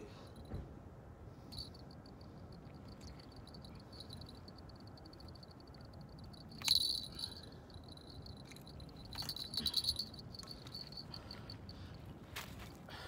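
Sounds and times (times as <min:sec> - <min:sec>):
cricket trilling: 0:01.5 - 0:11.6.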